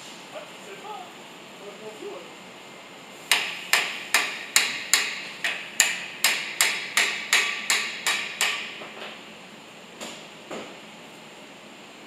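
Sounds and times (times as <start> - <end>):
sharp ringing knocks: 3.3 - 8.8.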